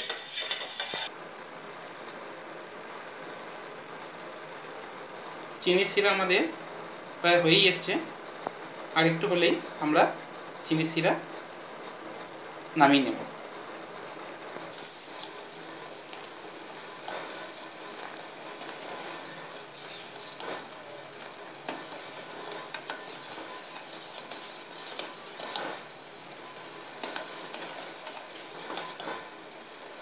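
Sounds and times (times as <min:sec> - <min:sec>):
syrup bubbling: 0:14.7 - 0:24.8.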